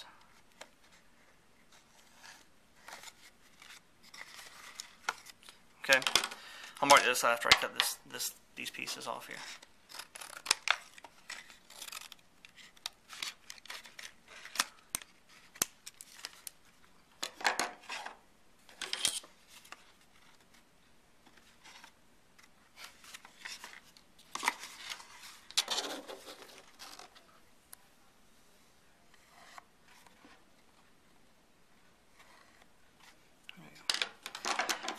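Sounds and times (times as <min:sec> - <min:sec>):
paper rustling: 0:21.3 - 0:27.3.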